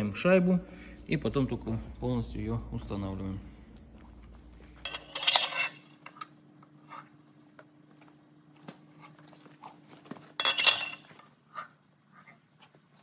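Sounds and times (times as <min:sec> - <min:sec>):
metal liner scraping: 0:04.2 - 0:05.9
light metallic clinks: 0:10.4 - 0:11.1.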